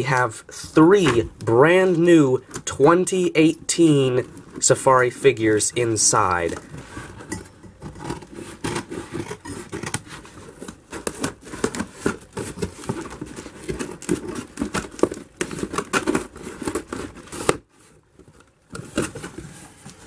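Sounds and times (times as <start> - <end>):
cardboard crinkling: 0.9 - 20.0
scissors scraping along packing tape: 8.0 - 17.6
tape tearing: 8.0 - 17.6.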